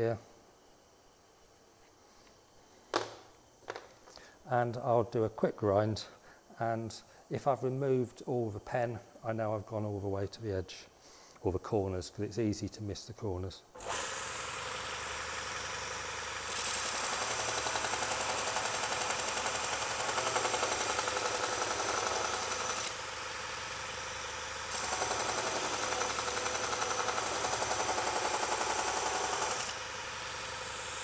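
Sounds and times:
belt grinder motor running: 0:13.8 - 0:31.0.

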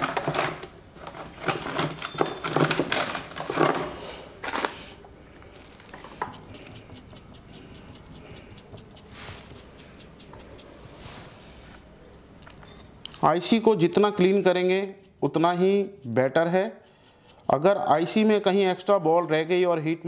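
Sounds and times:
cleaning tool scraping a chip: 0:06.1 - 0:10.8, 0:13.5 - 0:20.0.

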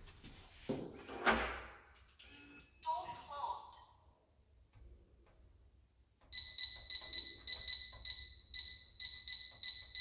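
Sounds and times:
keypad beeping: 0:06.3 - 0:10.0.

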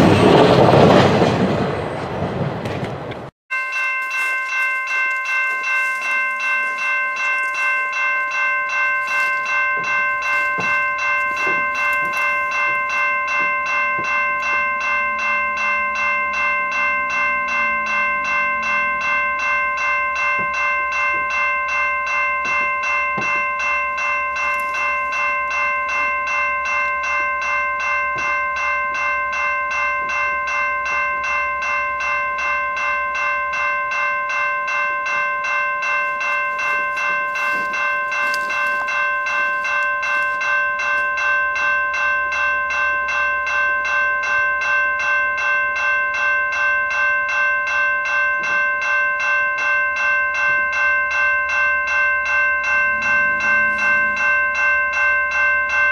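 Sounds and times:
freight train passing: 0:00.0 - 0:03.3, 0:09.3 - 0:44.4, 0:51.6 - 0:55.9
crossing bell ringing: 0:00.0 - 0:55.9.

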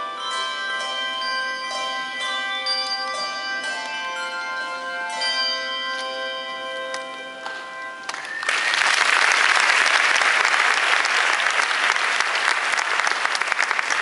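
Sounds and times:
handbell choir chord ringing: 0:00.0 - 0:08.6
audience applause: 0:08.1 - 0:14.0.

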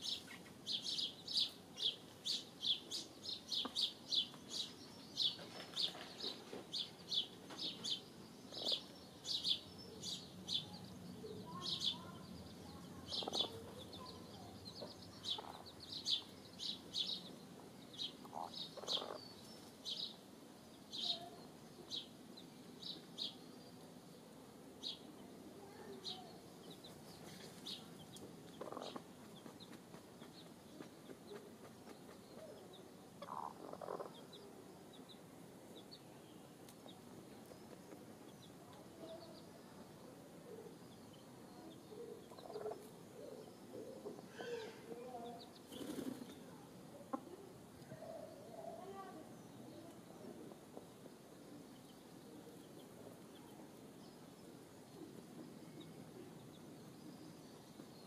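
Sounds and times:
chicks peeping: 0:00.1 - 0:10.2, 0:13.1 - 0:17.2, 0:18.0 - 0:19.7, 0:26.1 - 0:36.0, 0:41.7 - 0:42.9.

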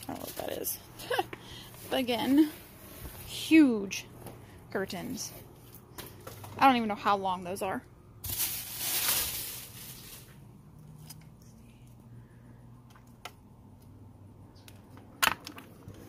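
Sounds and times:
plastic bag rustling: 0:00.0 - 0:03.5, 0:08.2 - 0:10.6.

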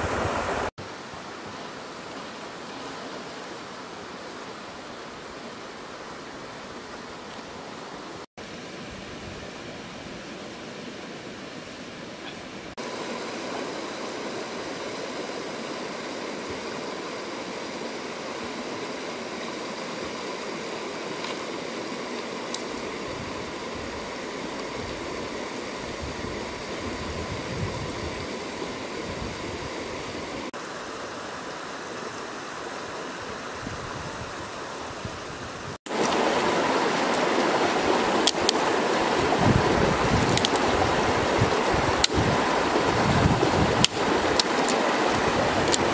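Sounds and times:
water rushing over rocks: 0:00.0 - 0:11.5, 0:35.5 - 0:45.9.

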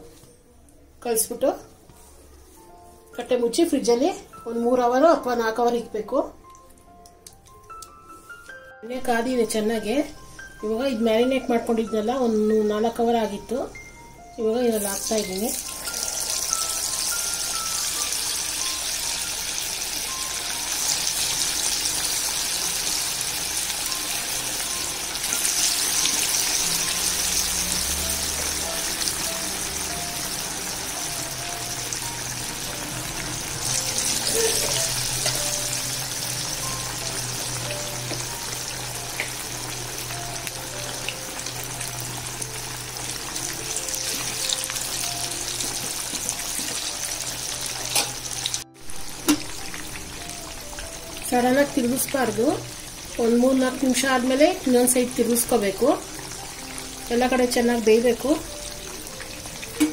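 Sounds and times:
oil sizzling in deep fryer: 0:14.7 - 0:59.9.

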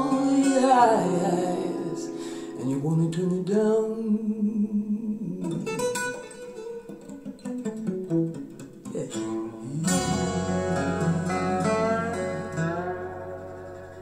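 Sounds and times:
plucked guitar notes: 0:00.0 - 0:03.0, 0:05.4 - 0:14.0
steady bass note: 0:09.9 - 0:14.0.

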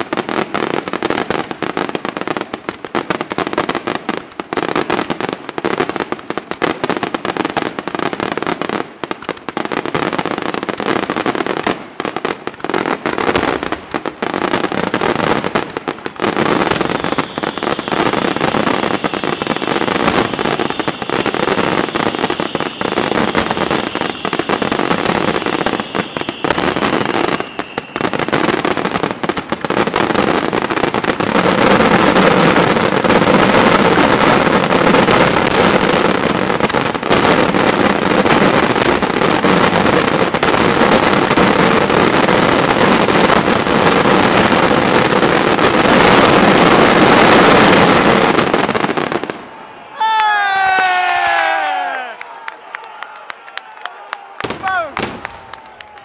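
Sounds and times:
fireworks exploding: 0:00.0 - 0:52.8, 0:54.4 - 0:56.0
high whistle: 0:16.8 - 0:28.4.

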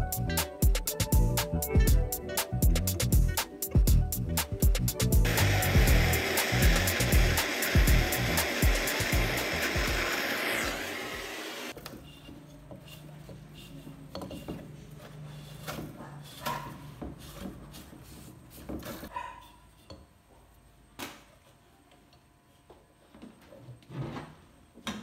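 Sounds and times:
torch flame hissing: 0:05.2 - 0:11.8.

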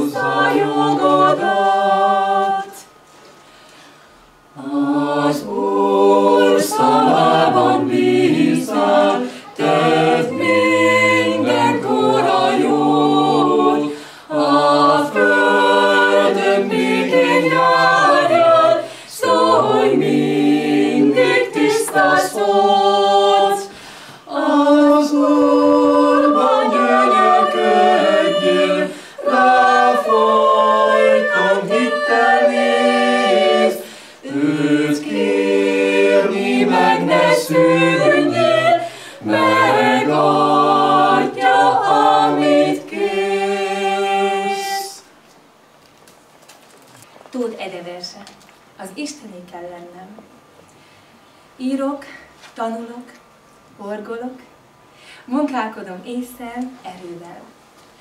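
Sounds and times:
vocal group singing a cappella: 0:00.0 - 0:45.2.

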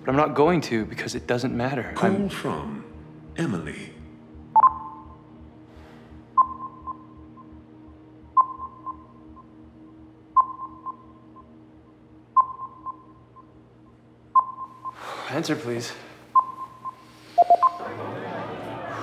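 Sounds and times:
low steady hum: 0:00.0 - 0:19.0
electronic ringtone chime: 0:16.4 - 0:17.8.

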